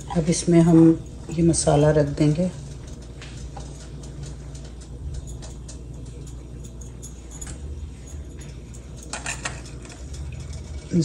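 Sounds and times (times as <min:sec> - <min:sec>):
steady low hum: 0:00.0 - 0:11.0
metal spoon tapping and scraping: 0:08.1 - 0:10.2.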